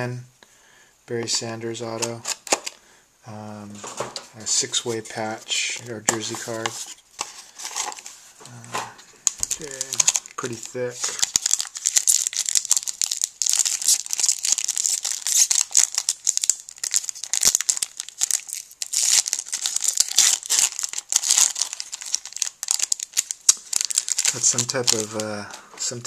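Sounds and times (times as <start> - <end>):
foil card pack crinkling and tearing: 5.6 - 8.6, 9.2 - 26.0.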